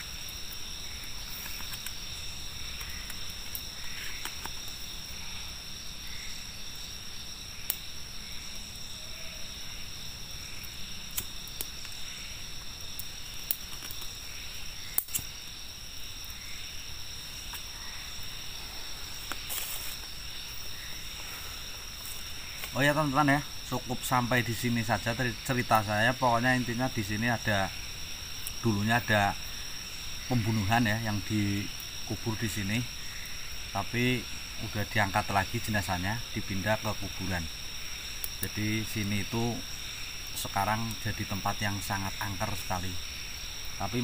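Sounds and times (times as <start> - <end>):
insects trilling: 0.0 - 44.0
sharp clicks: 11.1 - 12.0, 14.9 - 15.4.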